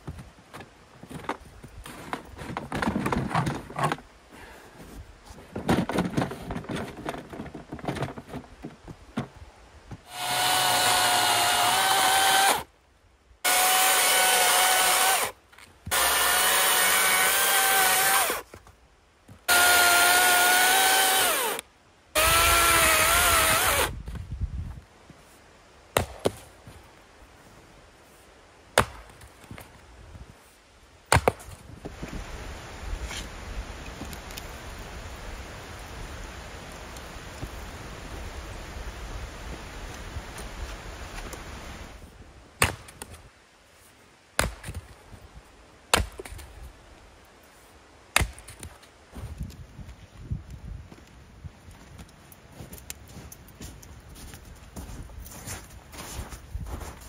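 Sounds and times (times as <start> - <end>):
chainsaw cutting logs: 10.1 - 12.7, 13.4 - 18.4, 19.5 - 21.6, 22.2 - 24.0
axe splitting wood: 31.1 - 31.5, 42.6 - 43.1, 44.4 - 44.8, 45.9 - 46.4.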